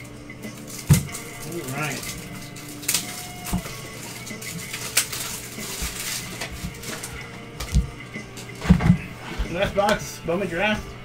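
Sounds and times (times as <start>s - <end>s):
cards clicking and rustling: 0.0s - 8.6s.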